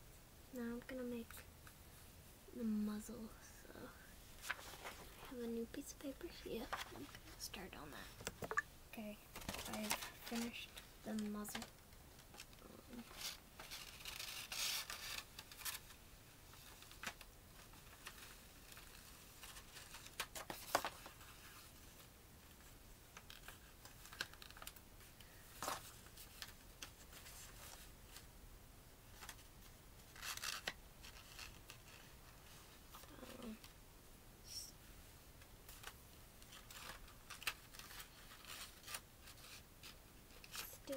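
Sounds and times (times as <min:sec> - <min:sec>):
paper rustling and crinkling: 0:04.4 - 0:05.4, 0:06.6 - 0:07.6, 0:09.3 - 0:28.3, 0:29.1 - 0:33.8, 0:35.6 - 0:40.9.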